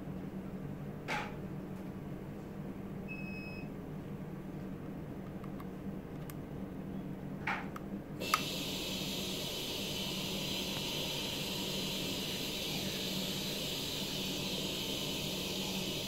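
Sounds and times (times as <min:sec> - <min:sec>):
click: 0:07.8 - 0:08.5
air hiss: 0:08.2 - 0:16.0.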